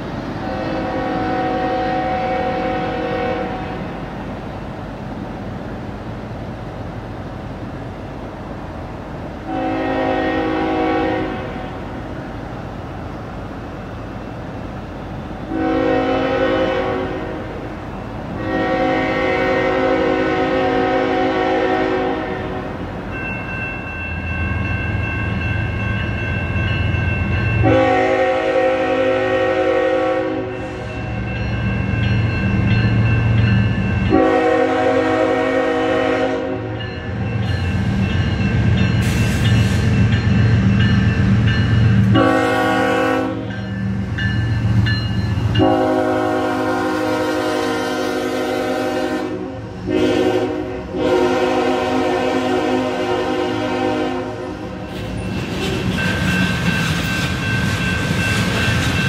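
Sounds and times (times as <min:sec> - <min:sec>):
locomotive air horn: 0:00.4 - 0:03.9, 0:09.4 - 0:11.8, 0:15.5 - 0:17.6, 0:18.4 - 0:22.8, 0:27.6 - 0:30.9, 0:34.1 - 0:36.8, 0:42.1 - 0:43.5, 0:45.6 - 0:54.8.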